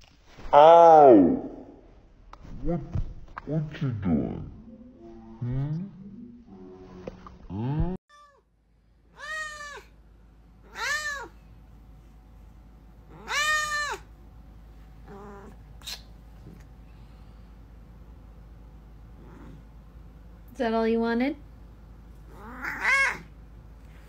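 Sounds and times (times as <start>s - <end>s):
cat meowing: 9.2s - 9.9s, 10.7s - 11.3s, 13.1s - 14.1s, 22.3s - 23.3s.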